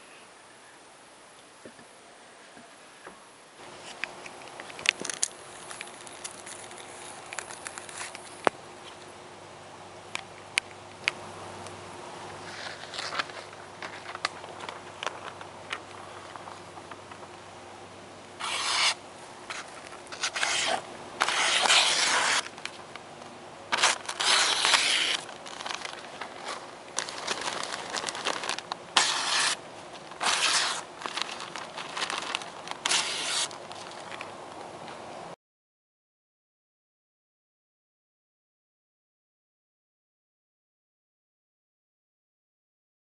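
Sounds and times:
knife slicing paper: 18.4 - 22.6, 23.7 - 26.0, 27.0 - 29.6, 30.2 - 33.6.

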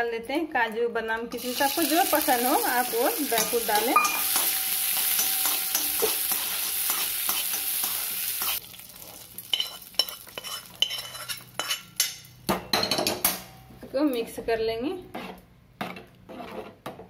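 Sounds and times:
nuts sizzling in hot fat: 1.4 - 11.6
spoon stirring and scraping pan: 1.9 - 12.3, 15.0 - 17.0.

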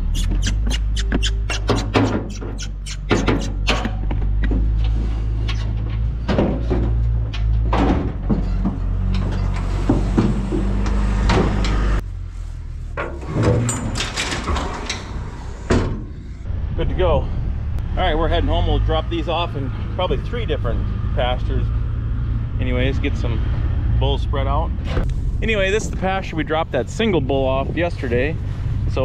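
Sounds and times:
hooves clattering on trailer floor: 0.2 - 11.8
metal trailer sides banging: 0.4 - 12.0.

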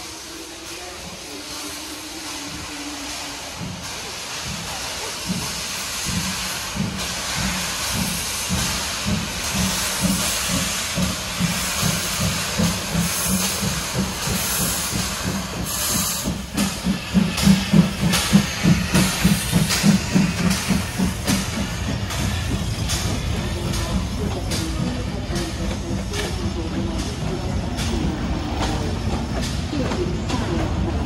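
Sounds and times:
steam hissing: 0.0 - 31.0
steam locomotive chuffing: 0.0 - 31.0.

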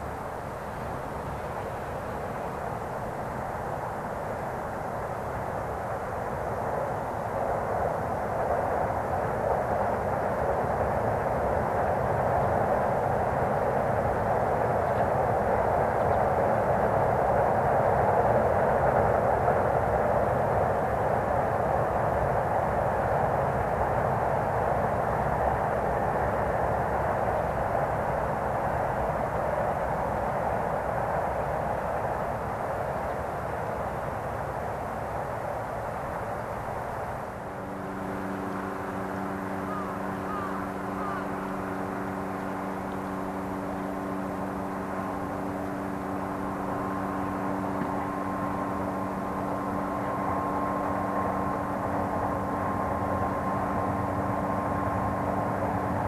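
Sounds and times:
low engine-like hum: 0.0 - 56.0
distant train rumble on bridge: 22.0 - 56.0.

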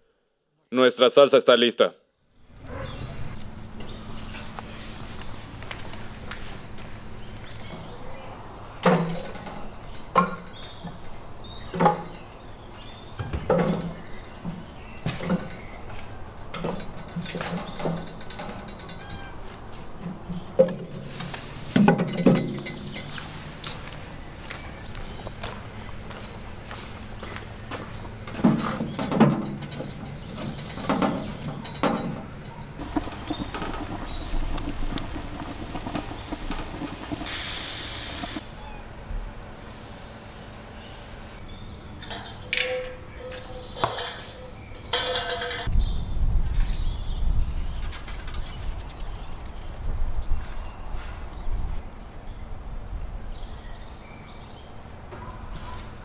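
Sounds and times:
fire crackling: 2.4 - 8.8, 29.8 - 38.4
metal knocks and clunks: 8.8 - 12.4, 13.2 - 21.1, 21.7 - 23.2, 28.0 - 37.3, 42.0 - 45.7
firewood logs knocking: 28.3 - 37.6.

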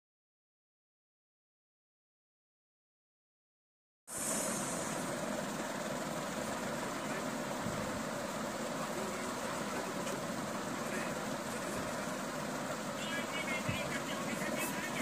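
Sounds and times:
background hiss and rumble: 4.1 - 15.0.

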